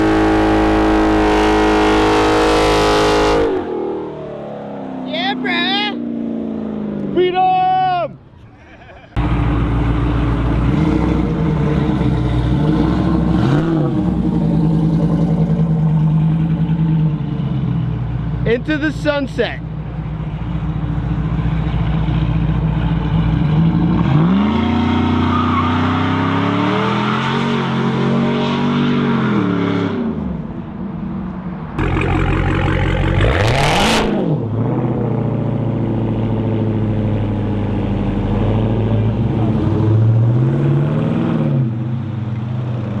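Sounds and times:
truck engine revving: 0.0s - 7.3s, 8.2s - 19.0s, 19.8s - 30.4s, 31.8s - 43.0s
car engine blipping: 31.8s - 34.2s.

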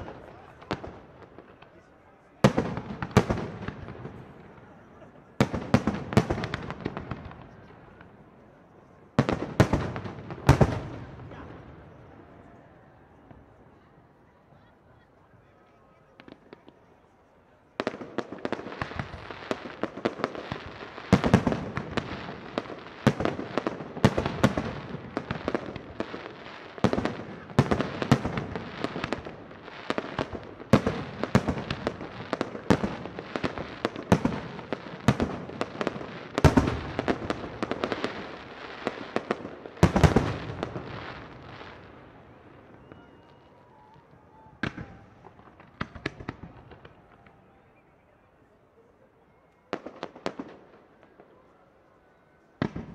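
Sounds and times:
firework bangs: 0.0s - 8.4s, 9.1s - 12.3s, 17.8s - 47.4s, 52.6s - 52.9s.

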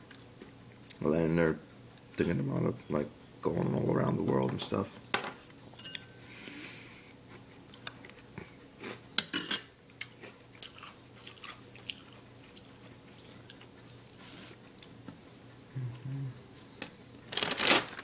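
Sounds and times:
person chewing crunchy cereal: 10.0s - 14.9s.

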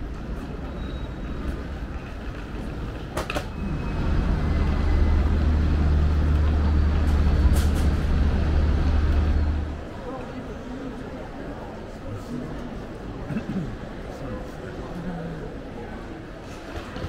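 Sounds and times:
road traffic: 0.0s - 10.1s
diesel engine droning: 3.5s - 9.9s.

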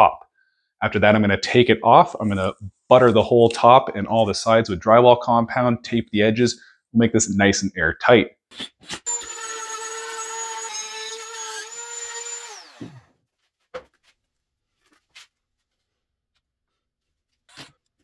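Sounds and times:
trim router whining: 9.1s - 13.1s.

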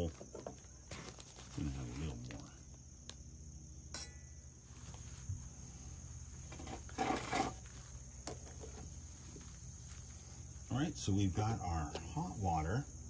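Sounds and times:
insects chirring: 0.0s - 13.0s
sharp clink: 3.9s - 4.5s.

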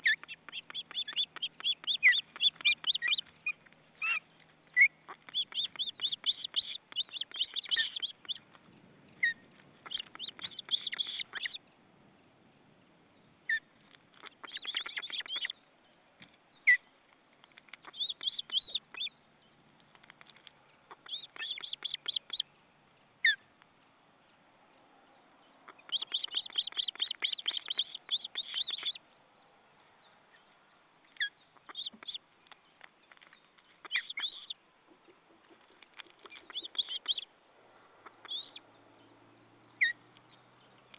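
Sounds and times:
ospreys chirping rapidly: 5.1s - 8.4s, 9.8s - 11.6s, 25.7s - 29.0s, 36.2s - 37.2s.

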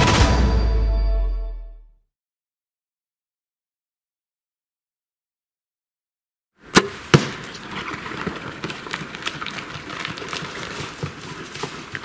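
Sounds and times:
arrow striking: 6.7s - 7.5s
animal scrambling over dirt and brush: 7.1s - 12.0s.

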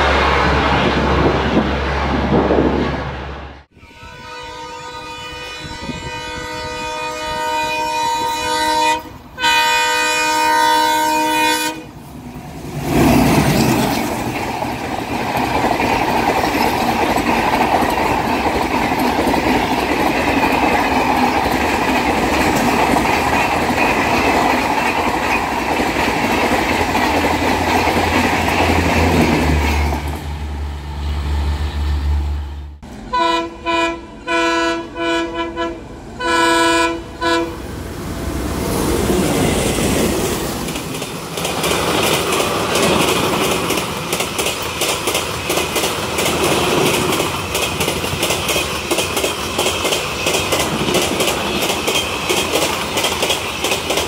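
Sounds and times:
train passing on rails: 0.0s - 54.0s
locomotive horn blasts: 3.7s - 11.9s, 32.4s - 37.7s.

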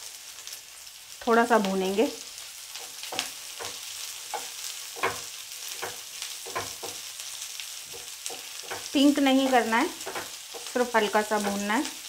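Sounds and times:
onions sizzling in oil: 0.0s - 12.0s
wooden spatula scraping a pan: 2.8s - 7.2s, 7.9s - 11.9s.

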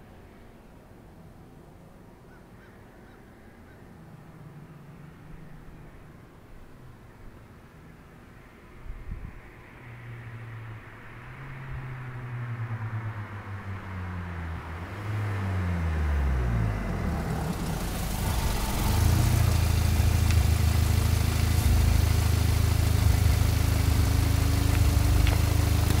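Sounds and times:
car engine slowing: 13.1s - 26.0s
low exhaust drone: 14.1s - 26.0s
tyre noise: 16.8s - 26.0s.

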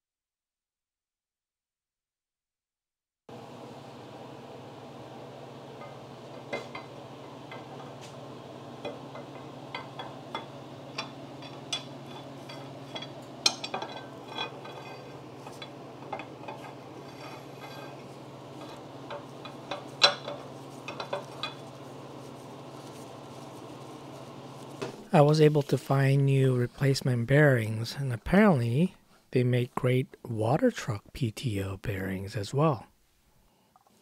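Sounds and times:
steady low hum: 3.3s - 33.5s
metal threads clinking and scraping: 8.8s - 24.8s.

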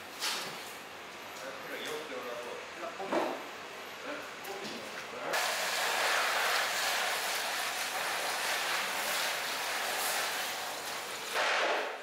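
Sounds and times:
steady rushing hiss: 5.4s - 11.5s.

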